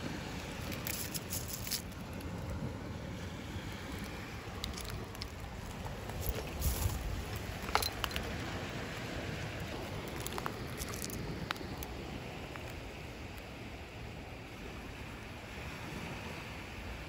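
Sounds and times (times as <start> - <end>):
wind: 0.0 - 17.0
seashells clicking together: 0.6 - 2.3, 4.0 - 8.4, 10.0 - 11.9.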